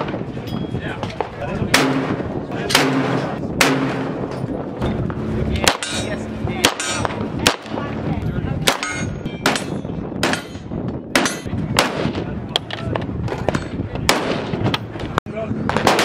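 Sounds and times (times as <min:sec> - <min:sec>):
gunshots cracking: 0:01.7 - 0:04.3, 0:05.6 - 0:07.9, 0:08.6 - 0:10.6, 0:11.2 - 0:12.2, 0:14.1 - 0:14.7, 0:15.7 - 0:16.0.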